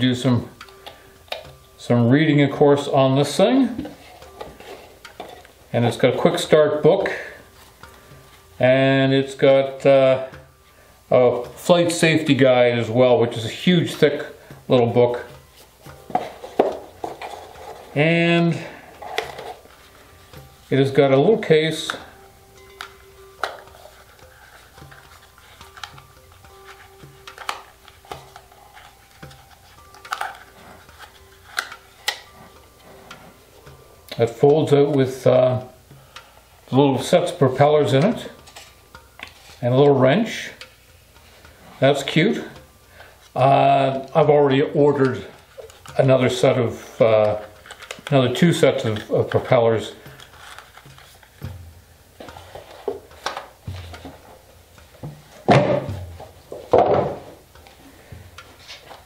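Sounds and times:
plastic case clicking: 0:27.0 - 0:32.3
cardboard boxes knocking on table: 0:55.1 - 0:57.4.

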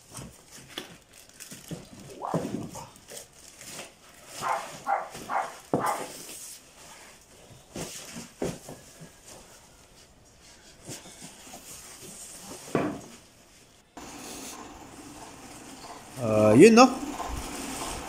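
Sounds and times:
cardboard and plastic rustling: 0:00.0 - 0:14.1
dog barking: 0:04.4 - 0:06.1.

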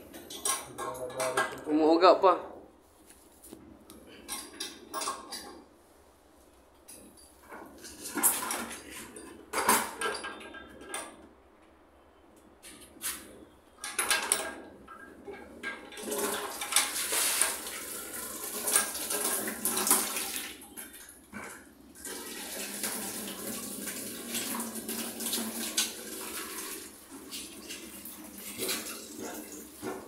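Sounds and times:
tap water filling plastic bucket: 0:15.9 - 0:30.0.

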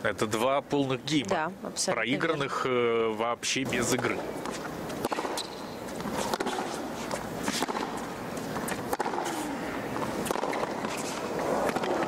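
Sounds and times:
stadium hum: 0:00.0 - 0:12.0
racket striking tennis ball: 0:04.0 - 0:12.0.

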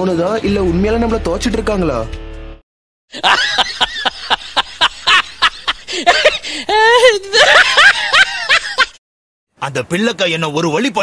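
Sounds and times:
cartoon voices laughing: 0:03.2 - 0:09.0.

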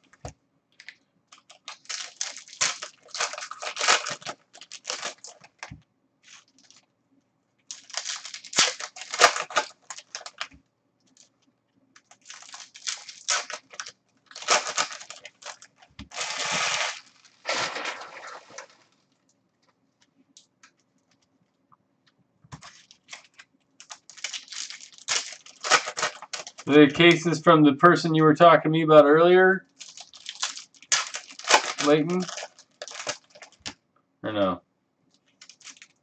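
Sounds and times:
card wrappers ripping and crinkling: 0:00.8 - 0:06.8, 0:07.7 - 0:11.3, 0:12.0 - 0:19.0, 0:22.5 - 0:27.4, 0:29.8 - 0:33.7, 0:35.3 - 0:36.0.

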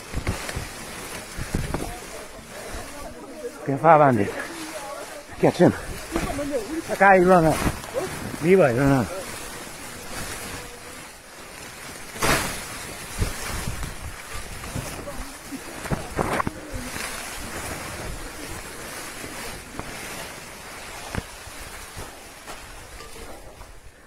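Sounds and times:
wind buffeting microphone: 0:00.0 - 0:03.3, 0:12.9 - 0:19.8.

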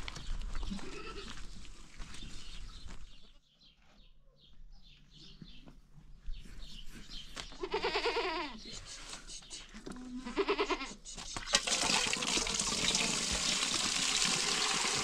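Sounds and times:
goat bleating: 0:00.7 - 0:01.4, 0:07.6 - 0:08.7, 0:10.0 - 0:11.0.

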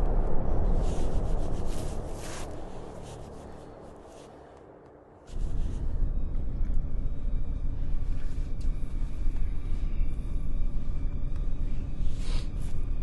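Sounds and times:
deep low rumble: 0:00.0 - 0:13.0.

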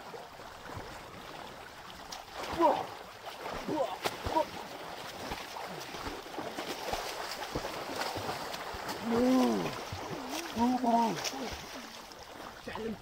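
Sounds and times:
swimmers splashing: 0:02.0 - 0:13.0
person shouting: 0:02.5 - 0:02.9, 0:09.0 - 0:09.8.

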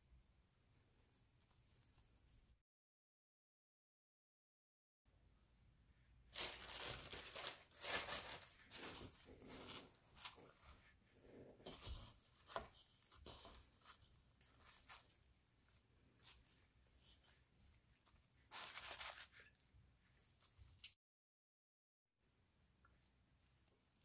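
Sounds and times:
cling film crinkling: 0:06.3 - 0:10.9, 0:18.1 - 0:19.6.

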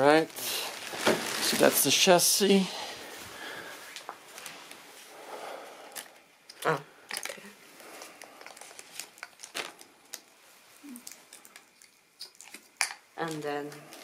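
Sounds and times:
plastic packaging crinkling: 0:00.2 - 0:02.6, 0:07.2 - 0:14.0.

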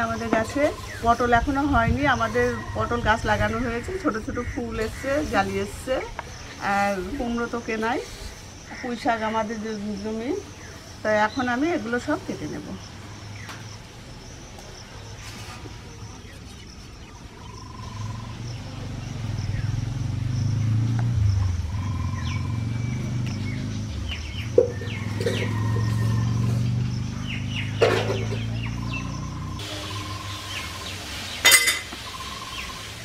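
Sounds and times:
higher bird chirps: 0:16.0 - 0:33.0.

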